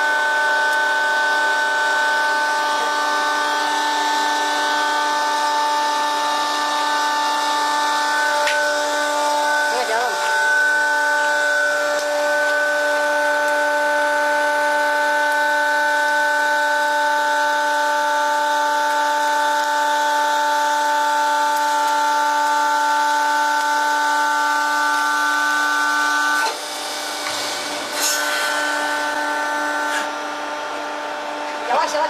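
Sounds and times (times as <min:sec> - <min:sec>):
machine whining: 0:00.0 - 0:32.0.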